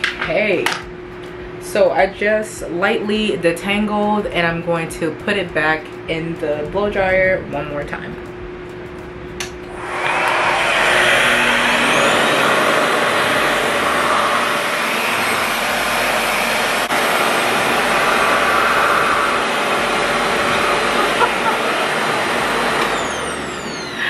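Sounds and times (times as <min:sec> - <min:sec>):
suction air rushing: 0:08.7 - 0:24.0.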